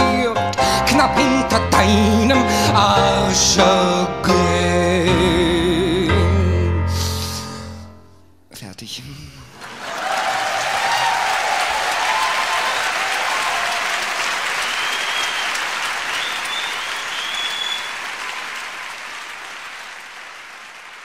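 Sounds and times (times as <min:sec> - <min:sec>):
audience applauding: 0:09.5 - 0:21.0
audience cheering: 0:09.6 - 0:21.0.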